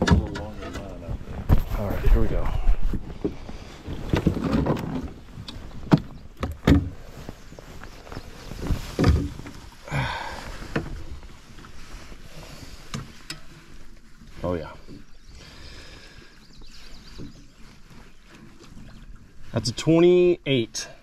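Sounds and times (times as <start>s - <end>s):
knocks and thuds against metal hull: 0.0s - 1.7s
rustling: 0.5s - 16.2s.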